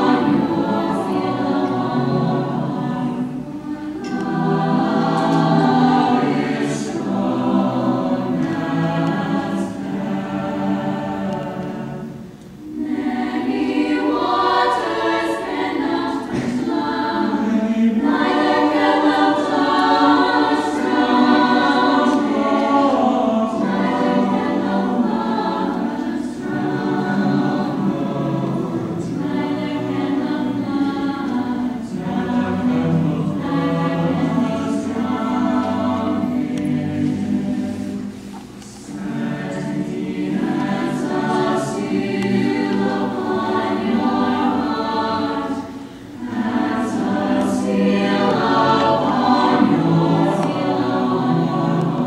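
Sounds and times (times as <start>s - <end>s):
choir singing in parts: 0.0s - 52.0s.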